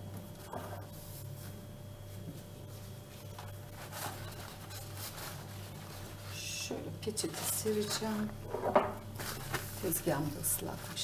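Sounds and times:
steady low hum: 0:00.0 - 0:11.0
paper towel rustling: 0:00.9 - 0:06.6, 0:09.2 - 0:11.0.

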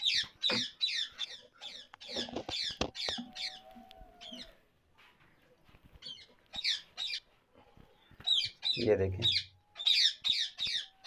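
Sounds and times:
parrots screeching: 0:08.3 - 0:11.0.

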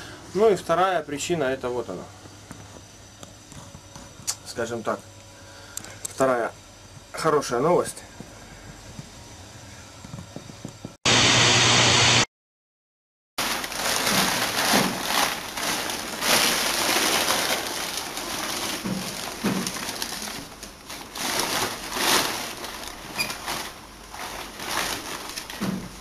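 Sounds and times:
static hiss: 0:11.1 - 0:12.3
plastic bag crinkling: 0:13.4 - 0:26.0.

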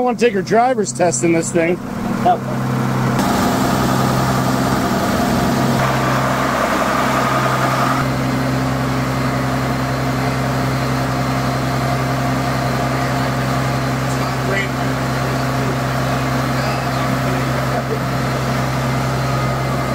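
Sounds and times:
engine idling: 0:00.9 - 0:19.9
brief higher whine: 0:03.2 - 0:08.4.

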